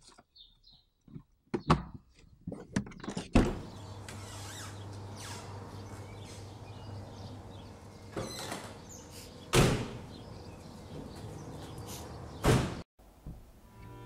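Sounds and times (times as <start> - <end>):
car doors slamming: 12.4 - 12.8.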